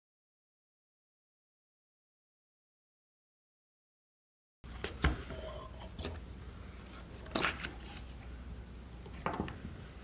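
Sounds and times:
low steady hum: 4.6 - 10.0.

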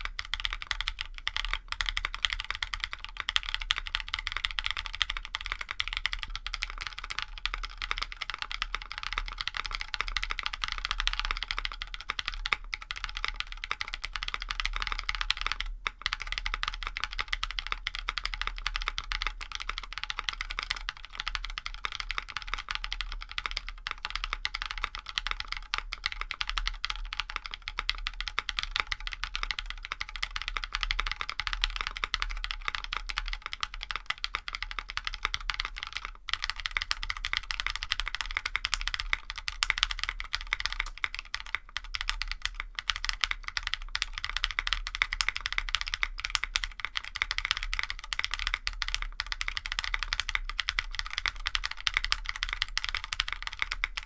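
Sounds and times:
fast typing on mechanical keyboard: 0.0 - 54.0.

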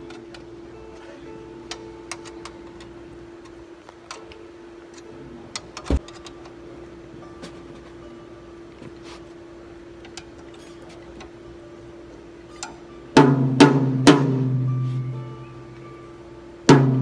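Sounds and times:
faint steady hum: 0.0 - 17.0
drum hardware clicks and knocks: 5.5 - 6.6, 12.6 - 14.7, 16.7 - 17.0
tom-tom hits ringing: 13.2 - 15.1, 16.7 - 17.0.

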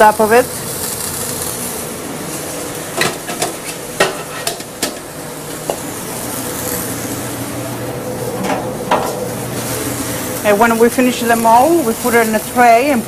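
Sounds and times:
steady hiss: 0.0 - 13.0
pans and utensils clinking: 2.9 - 5.8.

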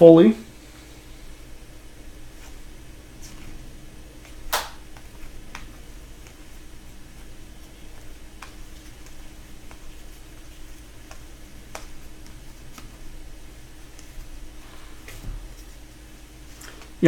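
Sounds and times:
low steady hum: 0.0 - 17.0
cards sliding ticks: 7.2 - 13.2.

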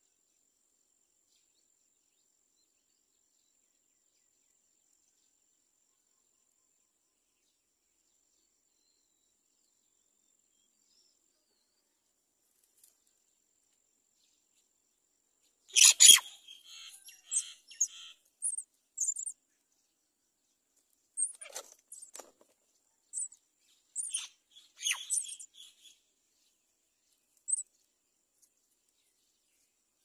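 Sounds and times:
nestlings begging chirps: 15.7 - 19.3, 24.0 - 26.0.

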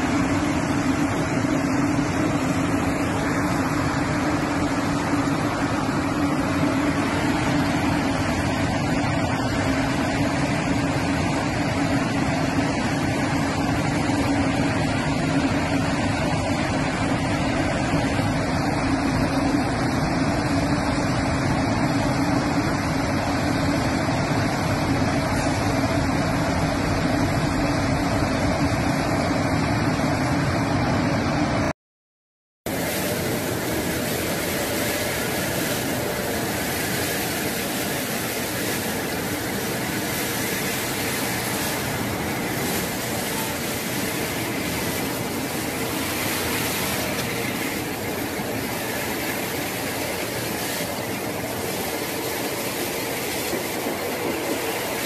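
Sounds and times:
spray water: 0.0 - 30.3, 32.7 - 55.0
washing plant mechanical hum: 0.0 - 31.7, 32.7 - 55.0
rotating brushes rushing: 32.7 - 55.0.

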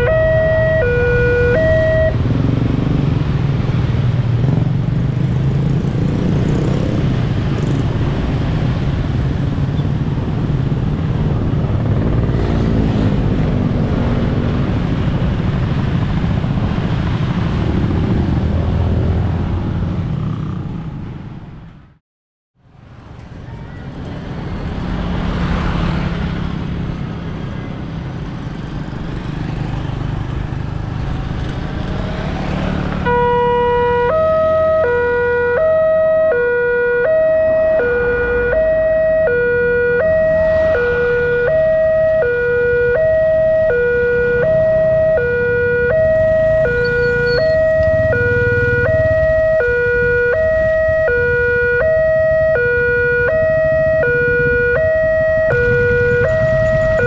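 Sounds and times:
level crossing two-tone alarm: 0.0 - 2.2, 33.1 - 57.0
road traffic passing: 0.0 - 22.0, 22.6 - 57.0.

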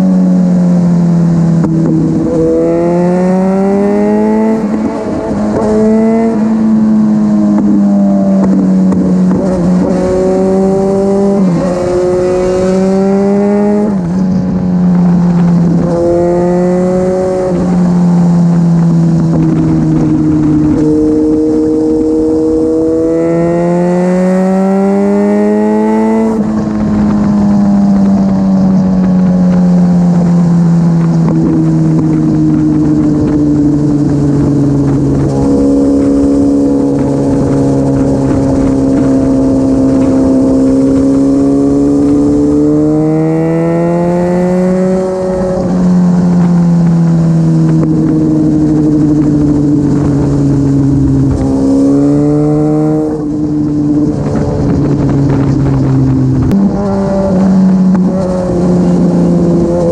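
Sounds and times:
motorcycle engine revving: 0.0 - 59.9
wind rushing over microphone: 0.0 - 59.9.

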